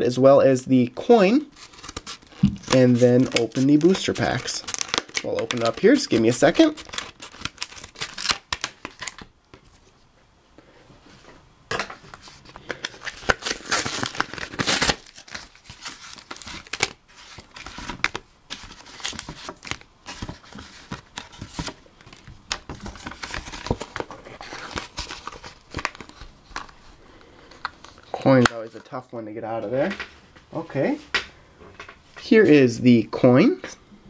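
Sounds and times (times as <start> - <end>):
plastic and cardboard crinkling: 1.5 - 10.0, 11.8 - 29.1.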